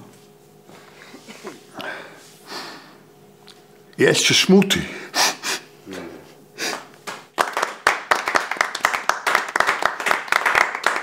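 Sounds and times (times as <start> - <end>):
people clapping: 6.7 - 11.0.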